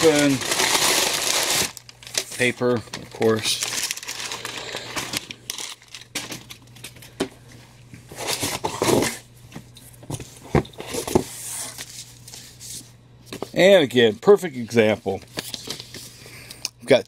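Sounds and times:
packing paper crinkling: 0:00.0 - 0:06.7.

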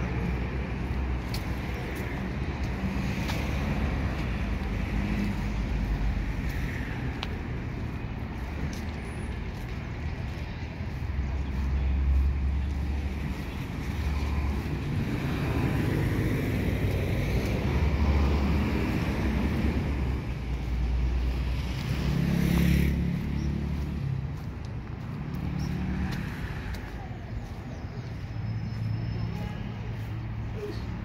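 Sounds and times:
motor vehicles passing: 0:00.0 - 0:31.0.

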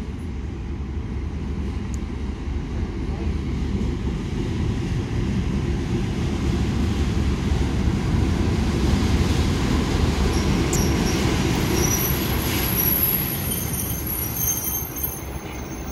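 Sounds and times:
diesel locomotive and train rolling: 0:00.0 - 0:15.9
wheels squealing: 0:10.4 - 0:15.9.

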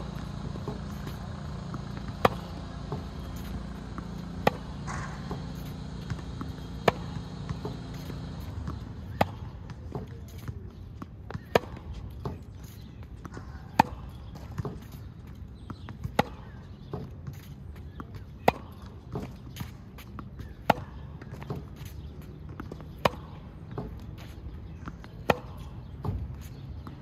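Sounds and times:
ball bouncing: 0:00.0 - 0:27.0
ball being struck: 0:00.3 - 0:10.0.

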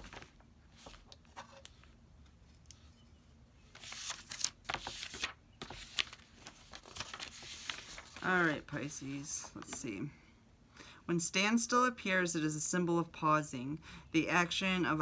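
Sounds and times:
paper rustling: 0:00.0 - 0:02.0, 0:03.7 - 0:09.9.

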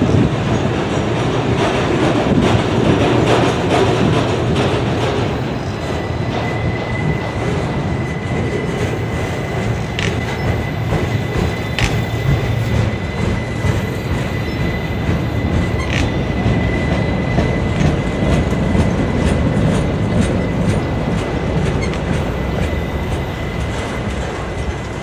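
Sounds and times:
train wheels rumbling on rail: 0:00.0 - 0:25.0
clicks over rail joints: 0:09.9 - 0:12.9.

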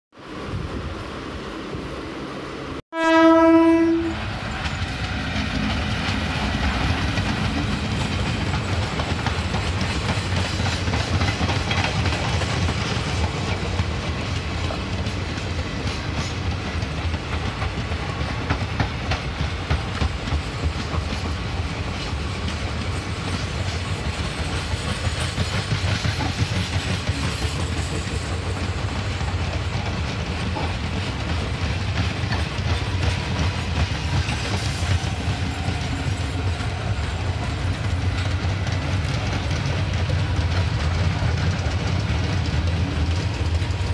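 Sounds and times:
passenger train rumbling past: 0:00.2 - 0:43.9
train horn: 0:02.9 - 0:04.5
wheels clicking over rail joints: 0:04.4 - 0:43.9.

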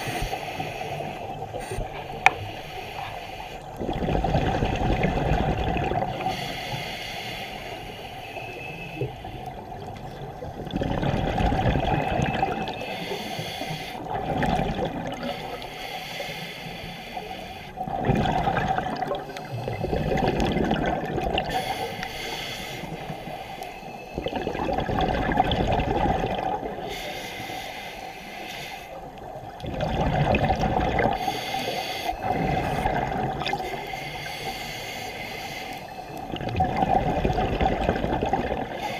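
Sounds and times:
scuba regulator bubbling exhalations: 0:03.8 - 0:06.4, 0:09.7 - 0:15.5, 0:17.8 - 0:22.2, 0:24.2 - 0:26.9, 0:29.6 - 0:33.9, 0:36.2 - 0:38.9.

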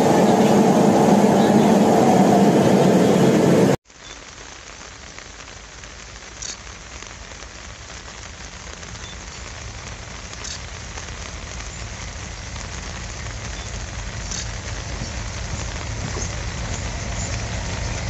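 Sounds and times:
diesel locomotive engine rumble: 0:00.0 - 0:03.8, 0:11.2 - 0:18.0
steady rain falling: 0:00.0 - 0:18.0.

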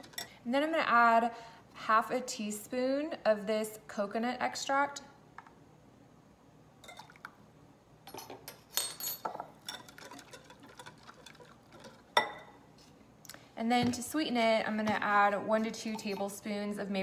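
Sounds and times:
spoon clinking against glass bowl: 0:12.2 - 0:12.5.

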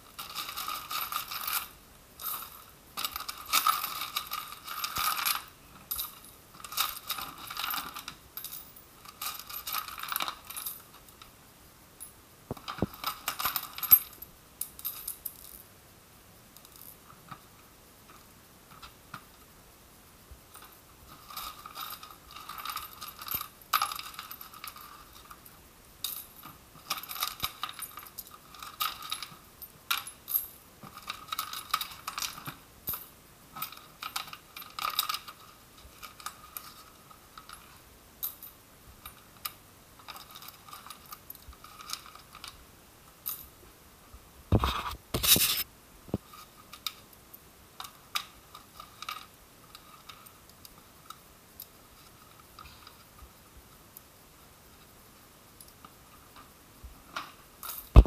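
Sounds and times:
coins rattling in plastic tank: 0:00.2 - 0:11.0, 0:20.6 - 0:25.4.

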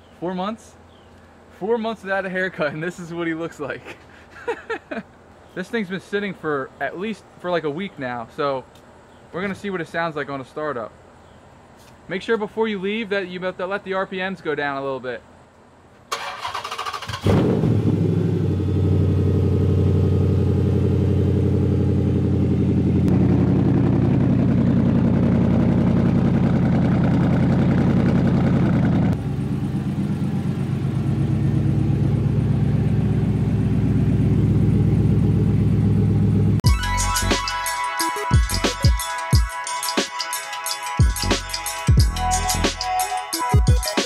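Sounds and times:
car engine starting and idling: 0:16.1 - 0:36.8.

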